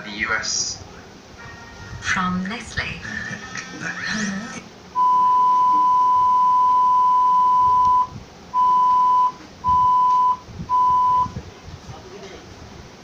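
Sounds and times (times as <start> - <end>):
steady test tone: 5.0 - 11.4.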